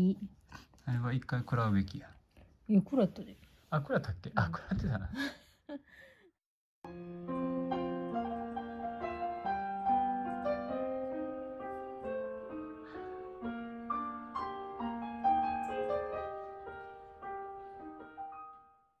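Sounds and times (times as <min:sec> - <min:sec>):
solo piano music: 0:06.9 - 0:19.0.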